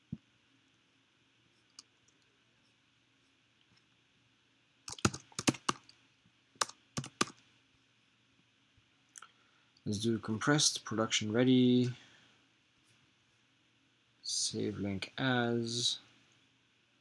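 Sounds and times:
computer keyboard keystrokes: 4.9 - 5.9, 6.6 - 7.4.

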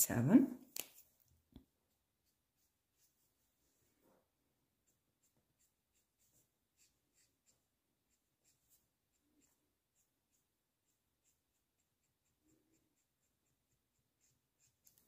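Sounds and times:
marker scratching on paper: 4.8 - 15.0.

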